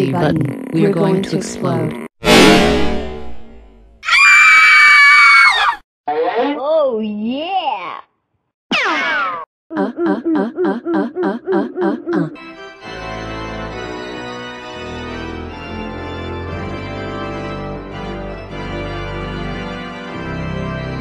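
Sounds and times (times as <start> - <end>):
organ-like music with held notes: 12.4 - 21.0.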